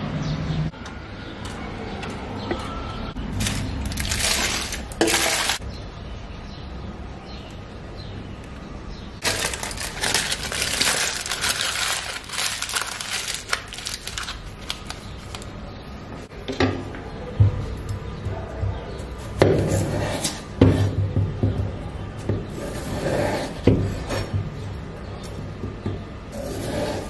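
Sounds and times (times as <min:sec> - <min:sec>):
aluminium foil crinkling: 0:03.3 - 0:05.6, 0:09.2 - 0:15.6.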